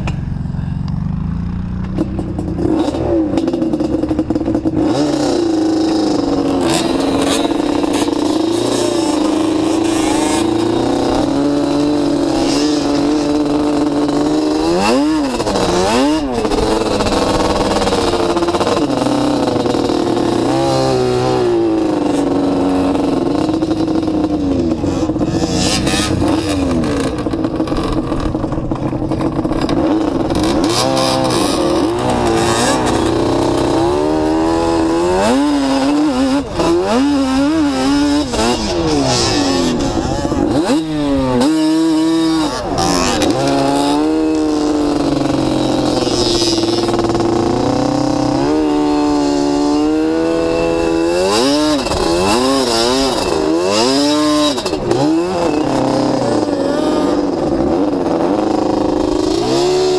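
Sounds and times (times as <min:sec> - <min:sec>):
atv engine revving: 0:00.0 - 0:59.9.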